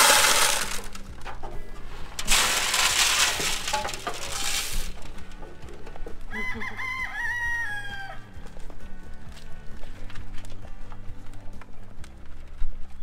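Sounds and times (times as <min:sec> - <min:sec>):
dry feed pouring into trough: 0:00.0 - 0:01.1, 0:02.2 - 0:05.0
rooster crowing: 0:06.3 - 0:08.3.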